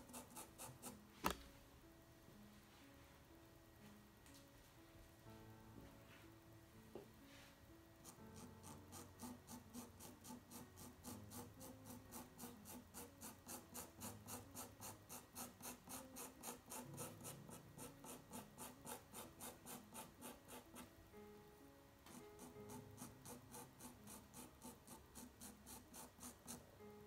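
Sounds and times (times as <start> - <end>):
pencil scratching on paper: 0.0 - 1.4, 8.0 - 20.9, 22.1 - 26.9
soft background music: 0.0 - 27.0.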